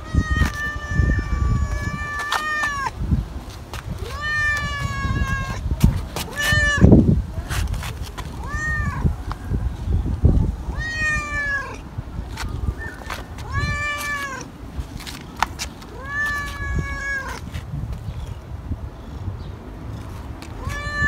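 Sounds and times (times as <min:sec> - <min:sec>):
cat meowing: 0:00.0 - 0:02.9, 0:04.0 - 0:05.7, 0:06.3 - 0:06.9, 0:08.4 - 0:09.1, 0:10.7 - 0:11.8, 0:13.4 - 0:14.5, 0:15.9 - 0:17.5, 0:20.6 - 0:21.0.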